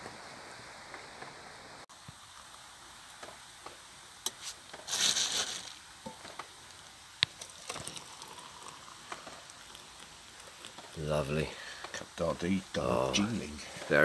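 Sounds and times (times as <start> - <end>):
water pouring into mug: 7.2 - 13.2.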